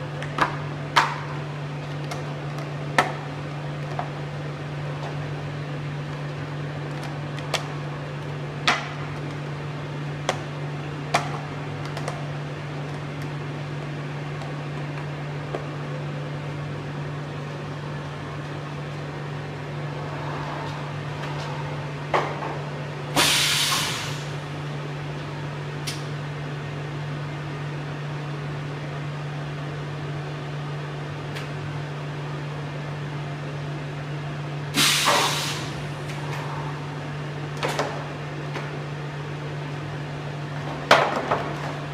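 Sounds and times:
sealing machine humming: 0:20.9 - 0:24.8, 0:34.7 - 0:37.6
short hiss: 0:23.2 - 0:24.3, 0:34.8 - 0:35.6.

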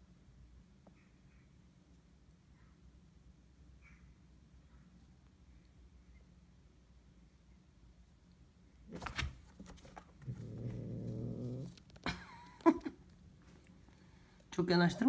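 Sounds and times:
cats hissing: 0:10.2 - 0:11.8
cat growling: 0:10.2 - 0:12.0.

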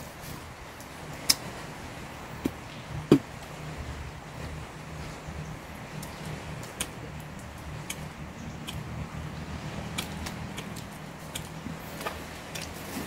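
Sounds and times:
steady low hum: 0:00.0 - 0:13.0
eating clicks and smacks: 0:06.0 - 0:09.0, 0:09.8 - 0:12.8.

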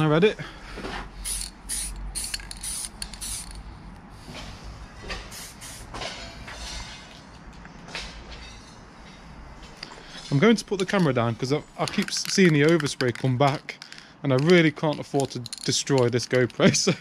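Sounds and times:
spray paint can hissing: 0:01.2 - 0:03.6, 0:05.3 - 0:06.0.

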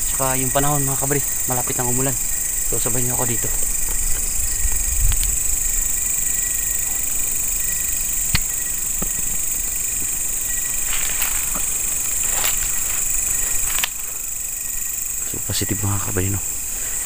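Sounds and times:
insects chirping: 0:00.0 - 0:17.0
low insect trill: 0:00.0 - 0:17.0
rustles: 0:00.0 - 0:17.0
sharp click: 0:08.3 - 0:09.4.

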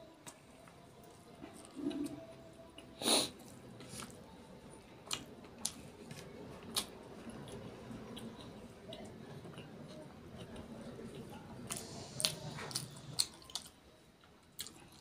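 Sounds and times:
breathy hiss: 0:11.7 - 0:13.1
mouth clicks and smacks chewing: 0:14.6 - 0:15.0.

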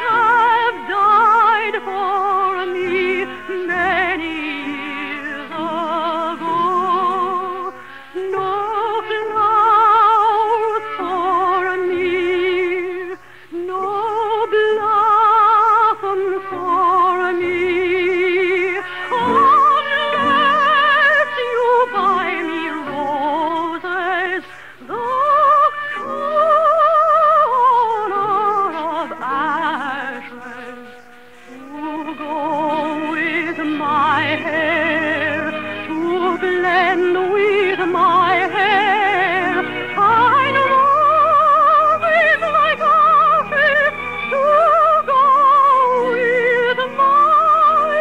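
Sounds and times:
operatic singing: 0:00.0 - 0:48.0
soft musical accompaniment: 0:00.0 - 0:48.0.

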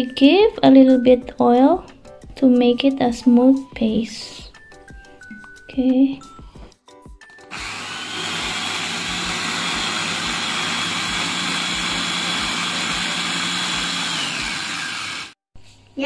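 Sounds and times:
food chopper whirring: 0:07.5 - 0:15.4.

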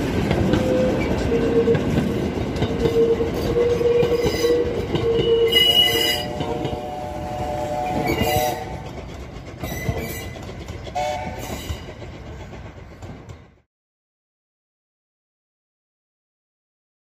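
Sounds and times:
tram wheels rumbling on rails: 0:00.0 - 0:13.7
high wheel squeal: 0:02.8 - 0:07.0, 0:09.6 - 0:12.0.

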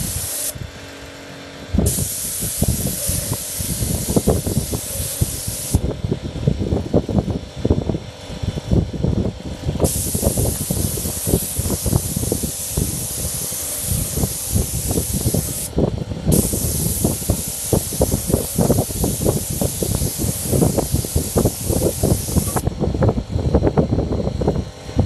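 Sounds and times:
spray gun hissing: 0:00.0 - 0:00.6, 0:01.8 - 0:05.8, 0:09.8 - 0:15.7, 0:16.3 - 0:22.7
low rumble: 0:05.8 - 0:25.0.

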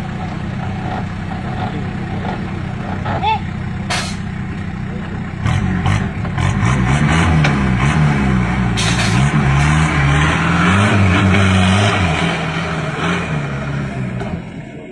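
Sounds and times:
engine revving hard: 0:05.4 - 0:14.6.

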